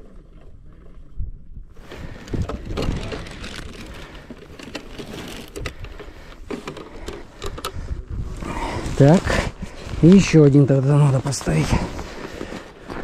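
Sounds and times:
snow and ice crunching: 1.8 - 6.6, 8.2 - 13.0.

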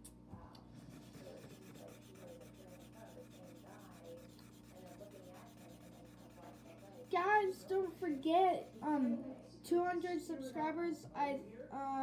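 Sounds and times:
marker scratching on paper: 0.8 - 9.0.

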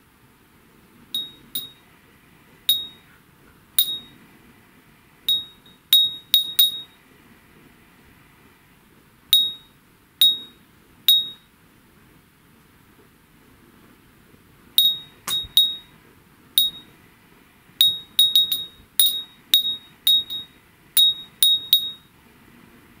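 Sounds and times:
glass wind bell pinging: 1.1 - 1.8, 2.7 - 3.1, 3.8 - 4.2, 5.3 - 7.0, 9.4 - 11.4, 14.8 - 15.9, 16.6 - 16.9, 17.8 - 22.1.

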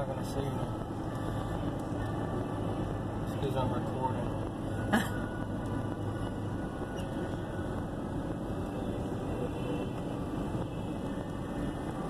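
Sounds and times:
car cabin road and engine rumble: 0.0 - 12.0.

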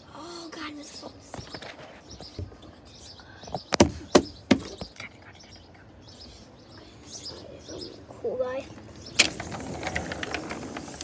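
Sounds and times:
birds chirping: 0.1 - 11.0
sharp knocks: 3.7 - 4.8.

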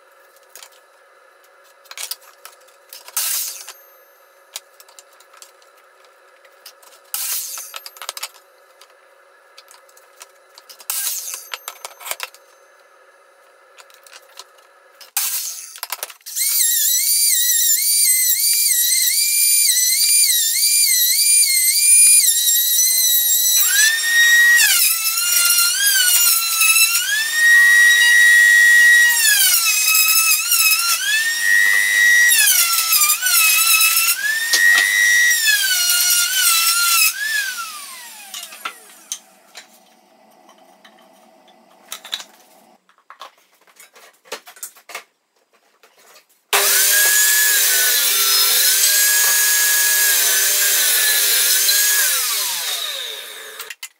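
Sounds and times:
miter saw motor whining: 16.3 - 42.8, 46.6 - 53.8.

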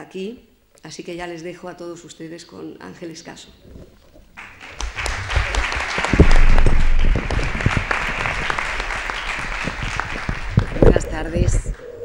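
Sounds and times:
audience applauding: 4.4 - 11.8.

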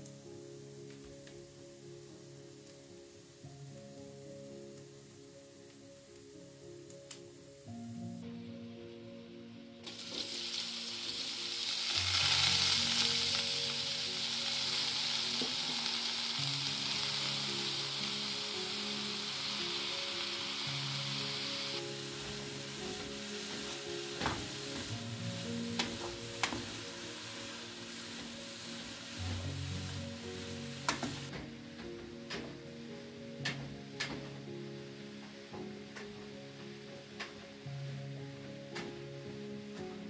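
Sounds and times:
vegetables sizzling in hot oil: 1.4 - 4.2, 9.8 - 31.3.

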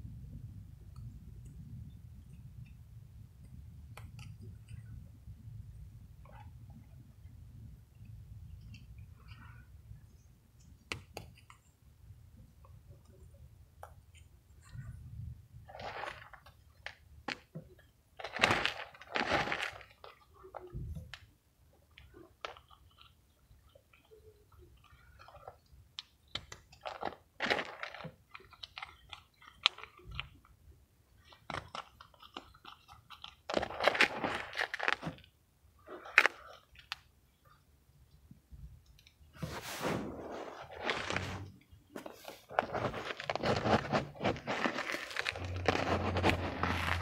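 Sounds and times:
mothballs crunching in plastic bowl: 18.2 - 20.2, 26.0 - 30.3, 31.2 - 35.3, 40.6 - 47.0.

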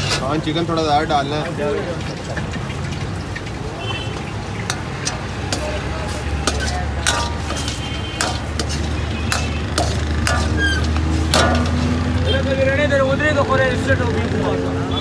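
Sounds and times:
steel ladle scraping iron wok: 0.0 - 0.4, 4.6 - 12.2.

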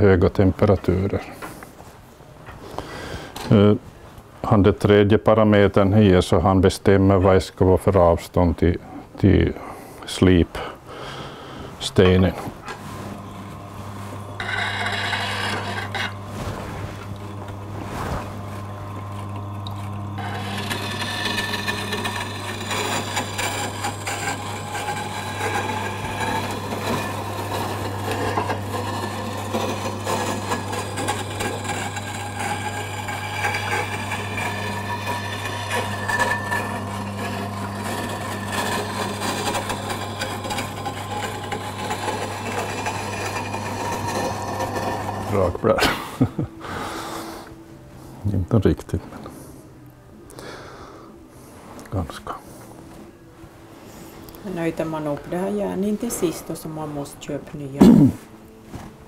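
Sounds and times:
grinder motor humming: 12.1 - 46.4
gouge rasping against grindstone: 14.3 - 16.2, 20.2 - 45.4.

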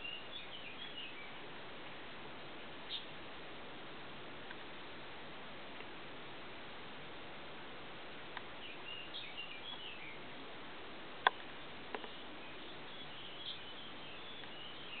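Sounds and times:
faint small bird chirps: 0.0 - 1.4, 2.9 - 3.1, 8.6 - 10.2, 11.6 - 15.0
steady hiss: 0.0 - 15.0.

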